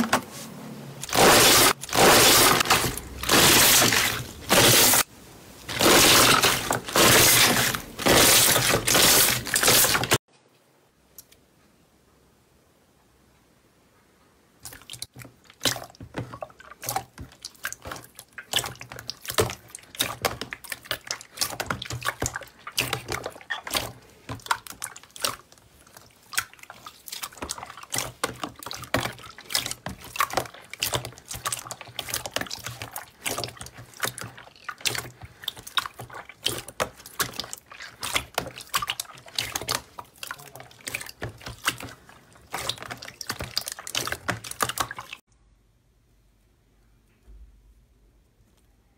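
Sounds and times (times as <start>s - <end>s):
slime squelching by hand: 0.0s - 10.3s, 14.6s - 45.3s.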